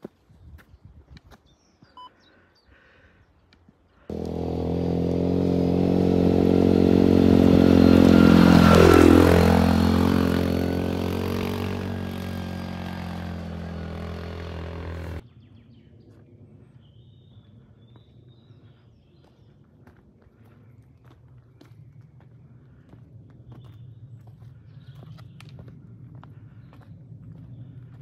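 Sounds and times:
vehicle engine passing by: 4.1 - 15.2.

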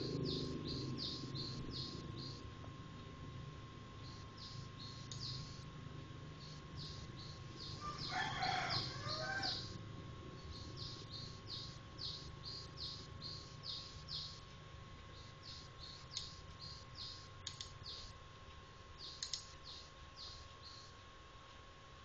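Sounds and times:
small bird chirping: 0.0 - 2.4, 4.0 - 5.7, 6.4 - 9.8, 10.4 - 14.5, 15.1 - 18.2, 19.0 - 21.0
faint steady tone: 0.0 - 22.0.

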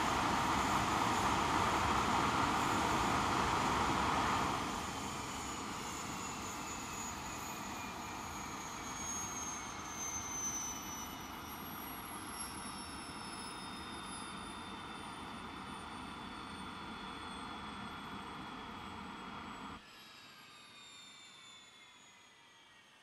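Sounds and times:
high turbine whine: 0.0 - 20.8
jet engines spooling down: 0.0 - 23.0.

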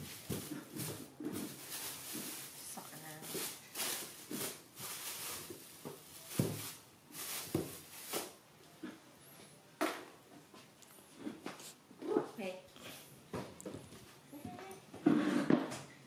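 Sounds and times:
plastic bags rustling: 0.0 - 8.4.

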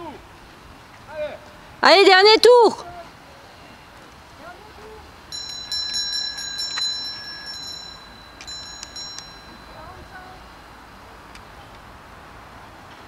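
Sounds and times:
bell ringing: 5.3 - 11.0.

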